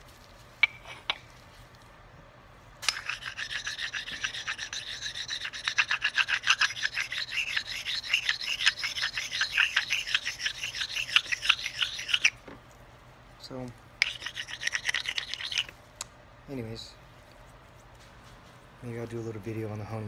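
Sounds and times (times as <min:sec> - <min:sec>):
sharpening stone scraping steel: 0:02.8 - 0:12.4, 0:14.0 - 0:15.7.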